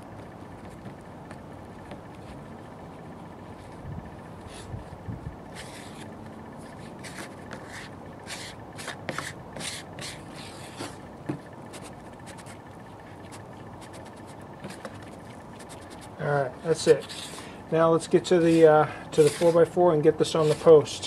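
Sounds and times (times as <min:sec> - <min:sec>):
mixing tool scraping paste: 0:11.8 - 0:21.0.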